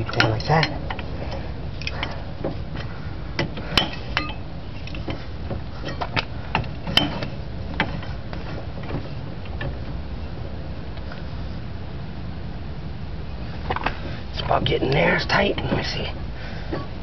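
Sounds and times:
low background hum: 0:00.0 - 0:17.0
wrench clinking on nuts: 0:03.8 - 0:04.4.

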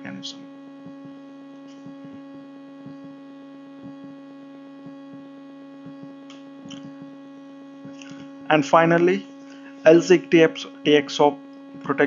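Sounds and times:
steady electrical hum: 0:00.0 - 0:12.0.

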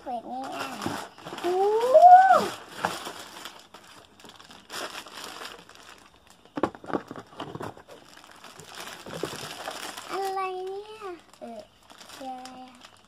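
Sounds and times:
plastic bags crinkling: 0:00.0 - 0:13.0
high rising vocal cry: 0:01.6 - 0:02.5.

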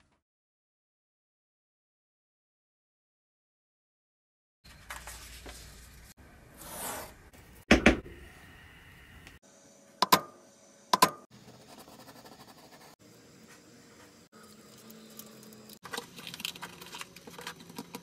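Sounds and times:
handling and scraping: 0:13.4 - 0:18.0.

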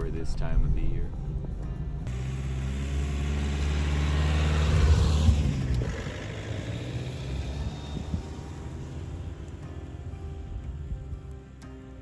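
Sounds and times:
car engine driving past: 0:02.1 - 0:10.1.

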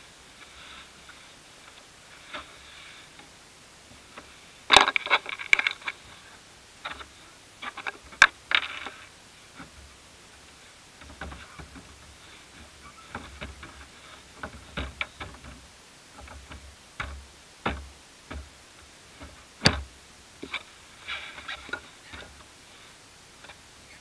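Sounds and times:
plastic boat knocking at water's edge: 0:16.2 - 0:18.5, 0:19.2 - 0:19.9.

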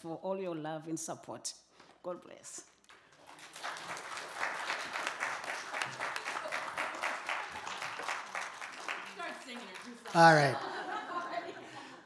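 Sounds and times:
crowd clapping: 0:02.7 - 0:11.5.

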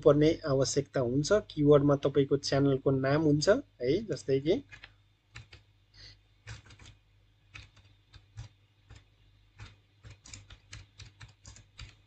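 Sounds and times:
keyboard typing: 0:04.6 - 0:05.6, 0:06.4 - 0:12.0.

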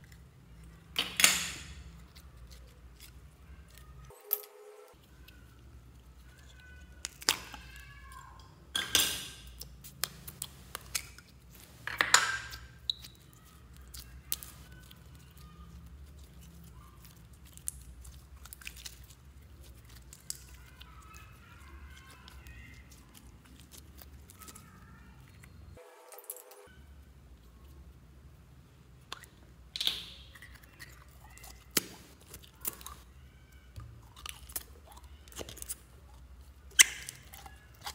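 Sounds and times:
slime crackling and popping: 0:06.2 - 0:08.4, 0:12.5 - 0:25.6, 0:29.2 - 0:36.0, 0:36.6 - 0:37.9
wet slime squelches: 0:12.5 - 0:25.8, 0:26.5 - 0:37.9.

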